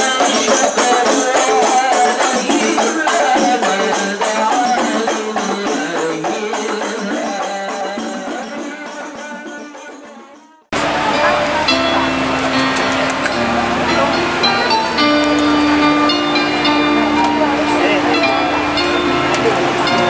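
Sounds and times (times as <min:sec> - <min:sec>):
frame drums playing fast beat: 0:00.0 - 0:11.8
melody over drums: 0:00.0 - 0:20.0.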